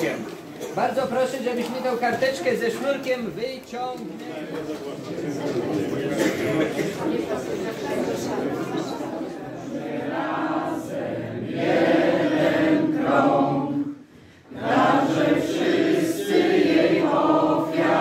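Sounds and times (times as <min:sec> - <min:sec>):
group of people singing: 0:08.1 - 0:18.0.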